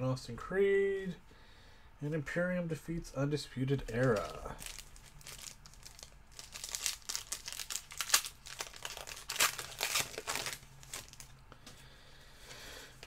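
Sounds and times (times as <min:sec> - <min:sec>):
wrapper crinkling and tearing: 0:03.8 - 0:11.4.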